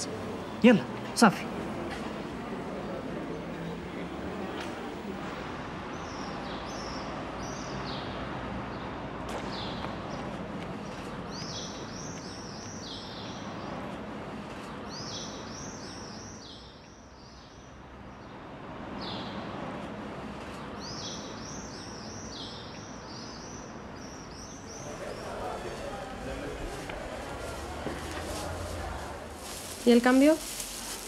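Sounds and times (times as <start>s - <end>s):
street noise hum: 0.0s - 31.0s
small birds chirping: 9.5s - 18.4s.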